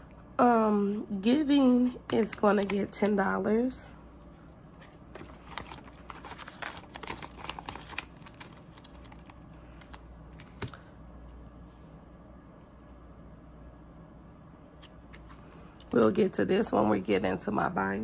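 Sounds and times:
low steady hum: 0:00.0 - 0:18.0
plastic envelope crinkling: 0:04.2 - 0:10.8.

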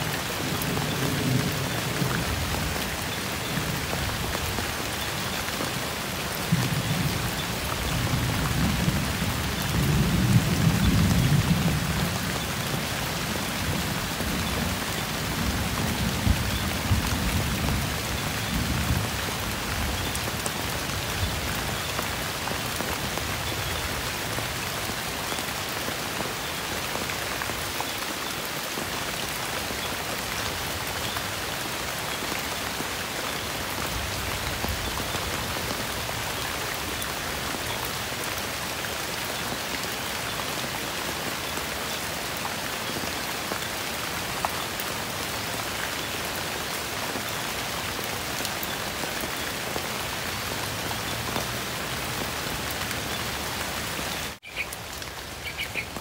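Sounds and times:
heavy rain on leaves: 0:00.0 - 0:56.0.

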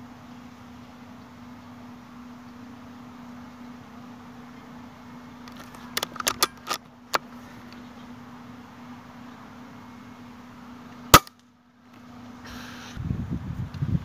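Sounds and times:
steady low hum: 0:00.0 - 0:14.0
sharp metallic clicks: 0:05.5 - 0:07.3.

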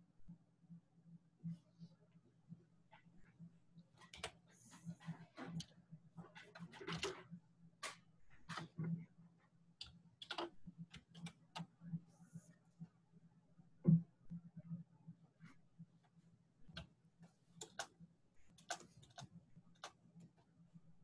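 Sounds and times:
keyboard and mouse clicking: 0:09.8 - 0:11.7, 0:17.6 - 0:17.9, 0:18.5 - 0:20.0.

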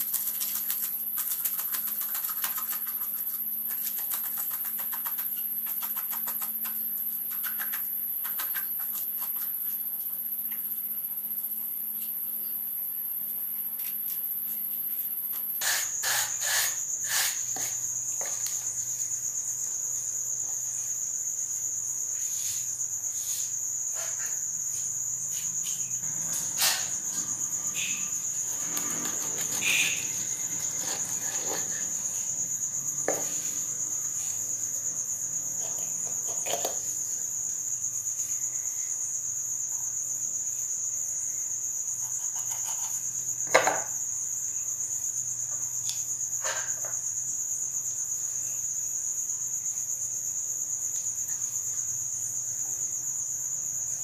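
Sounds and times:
crickets chirping: 0:00.0 - 0:54.0
knife knocking on cutting board: 0:43.5 - 0:43.9.

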